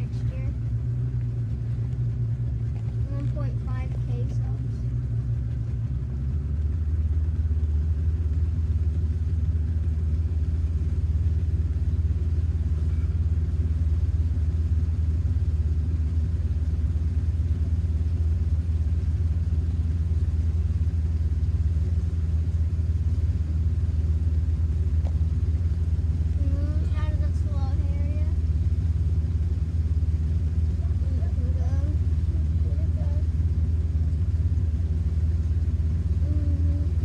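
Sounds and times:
motorboat engine humming: 0.0s - 37.0s.

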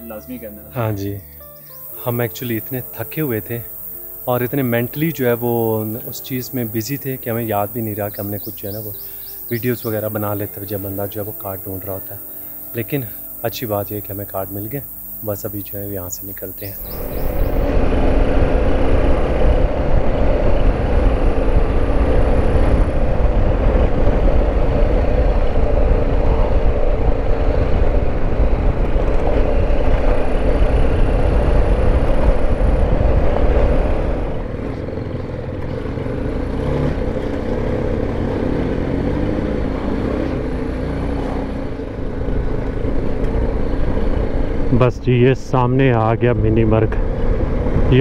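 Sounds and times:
wind rumble on microphone: 16.8s - 35.6s, 46.4s - 48.0s
motorcycle engine running: 16.8s - 44.8s.

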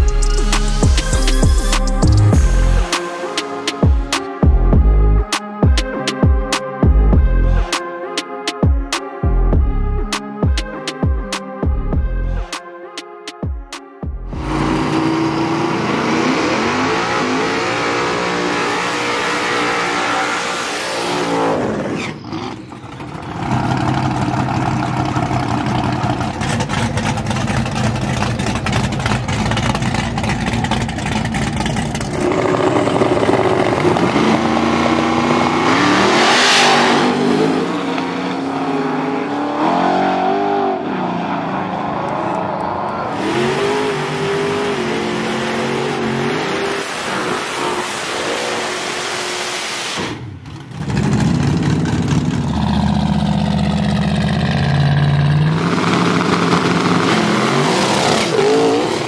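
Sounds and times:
race car engines revving: 14.3s - 59.0s
cars launching with hard engine running: 14.4s - 59.0s.

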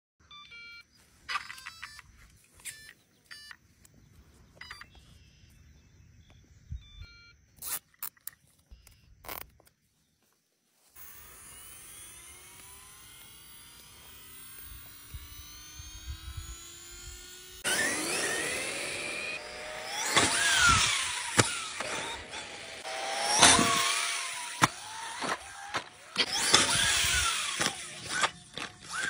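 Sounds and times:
plastic toy clicks and squeaks: 1.3s - 3.6s, 7.6s - 9.8s, 24.5s - 29.0s
small electric motor whirring: 7.6s - 9.7s, 10.9s - 29.0s.

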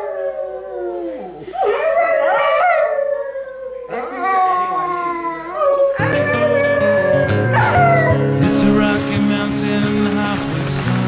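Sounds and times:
dog howling: 0.0s - 8.4s.

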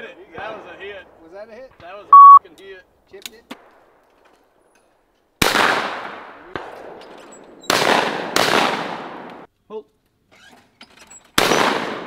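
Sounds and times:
shotgun shots: 5.4s - 7.0s, 7.7s - 9.5s, 11.4s - 12.0s.

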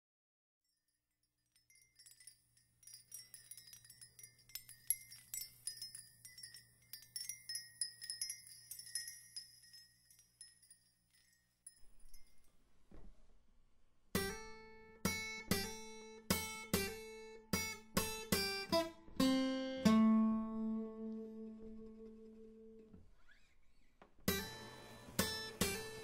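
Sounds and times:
small chimes tinkling: 0.6s - 12.6s.

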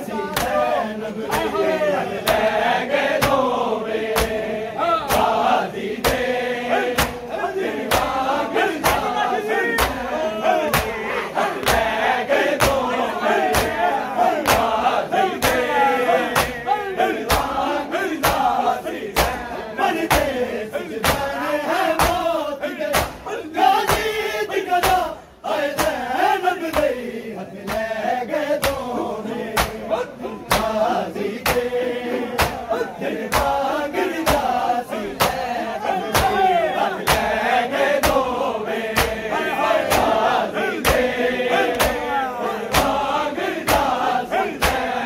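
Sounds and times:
men chanting together: 0.0s - 45.0s
hands slapping chests: 0.3s - 0.7s, 1.3s - 1.6s, 4.1s - 4.4s, 5.0s - 6.3s, 6.9s - 9.2s, 9.8s - 11.0s, 11.6s - 11.9s, 12.5s - 17.6s, 18.2s - 18.6s, 19.2s - 19.5s, 20.1s - 20.4s, 21.0s - 21.4s, 22.0s - 22.3s, 22.9s - 23.2s, 25.7s - 26.0s, 26.7s - 27.0s, 27.7s - 27.9s, 28.6s - 28.9s, 29.5s - 29.9s, 30.5s - 35.5s, 36.1s - 37.3s, 38.0s - 38.3s, 38.9s - 39.2s, 39.8s - 40.2s, 40.8s - 42.1s, 42.7s - 43.0s, 43.6s - 44.0s, 44.6s - 44.9s.

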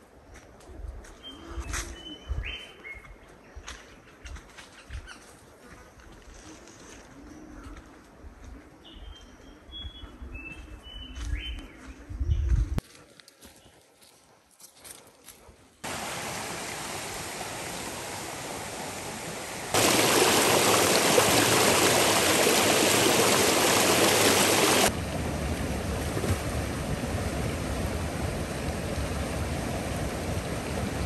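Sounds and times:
water rushing over rocks: 15.8s - 31.0s.

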